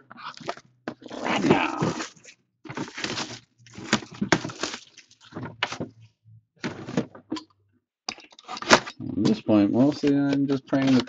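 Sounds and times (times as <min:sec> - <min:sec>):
plastic wrapping crinkling: 0:01.2 - 0:05.4.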